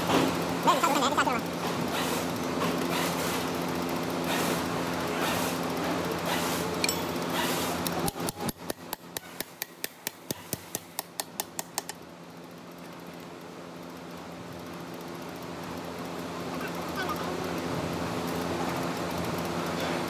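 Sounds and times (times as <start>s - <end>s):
machine hum: 0.0s - 9.0s, 12.0s - 20.0s
workshop noise: 0.0s - 12.0s.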